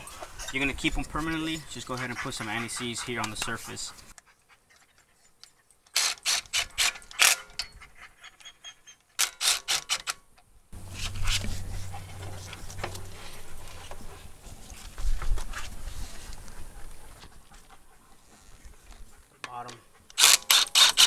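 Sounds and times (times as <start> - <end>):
steady low hum: 10.8 - 17.2.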